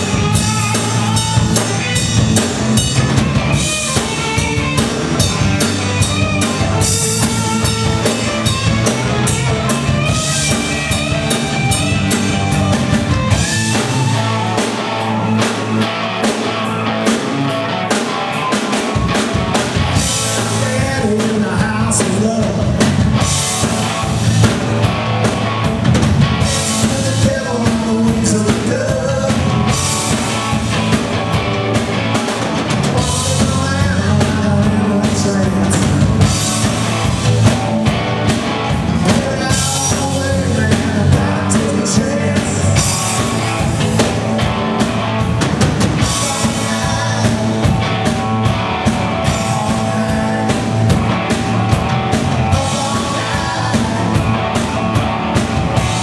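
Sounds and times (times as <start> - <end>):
bass guitar: 0.0 - 56.0
drum kit: 0.0 - 56.0
electric guitars: 0.0 - 56.0.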